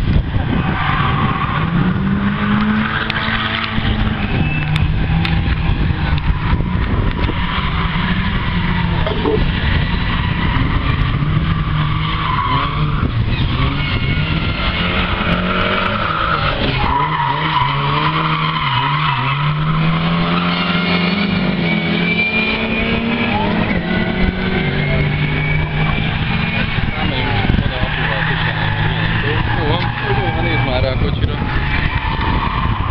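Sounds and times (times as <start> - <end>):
racing car engines revving: 0.0 - 32.9
tyres squealing: 11.6 - 32.9.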